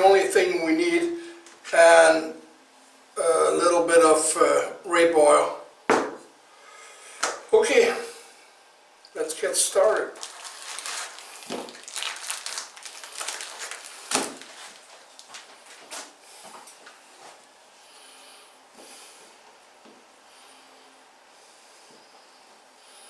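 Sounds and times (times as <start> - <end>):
plastic packaging crinkling: 9.8 - 16.2.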